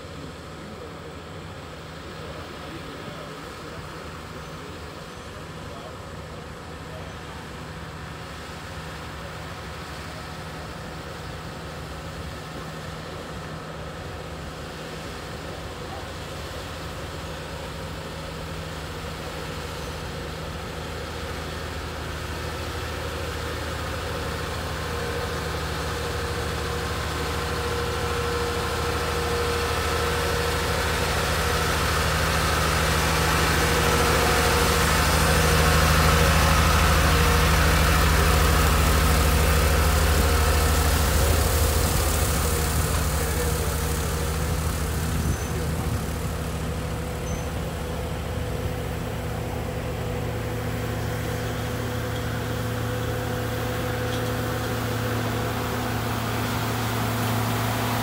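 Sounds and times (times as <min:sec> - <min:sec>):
truck engine running: 0:00.0 - 0:58.0.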